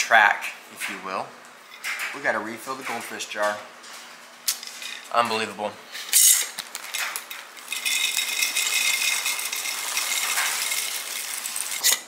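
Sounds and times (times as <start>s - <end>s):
crackers rattling into glass jar: 6.1s - 12.0s.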